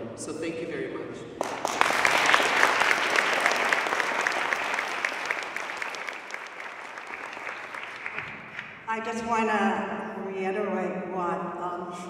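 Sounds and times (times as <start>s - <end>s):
audience applauding: 1.4s - 8.9s.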